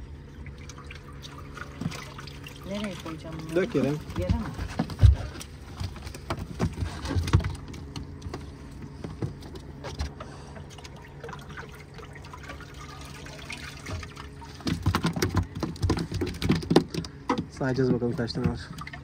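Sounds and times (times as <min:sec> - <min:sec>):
water splashing and trickling: 0:00.0 - 0:19.0
fish knocking on boat floor: 0:14.6 - 0:18.9.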